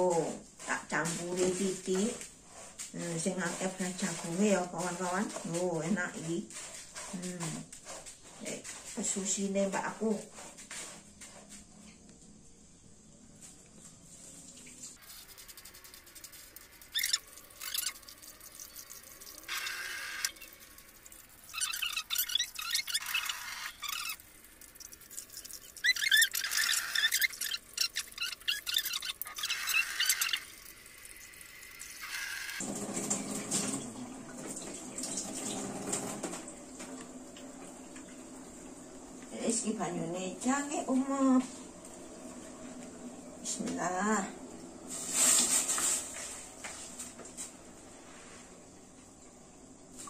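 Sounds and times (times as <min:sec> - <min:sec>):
hands rinsing grain in water: 0:14.1 - 0:32.0.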